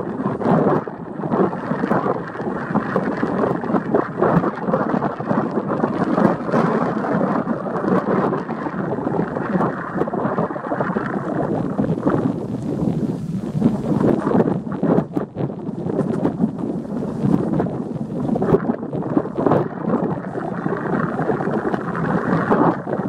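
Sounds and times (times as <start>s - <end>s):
distant jet engines rumbling: 8.3s - 23.0s.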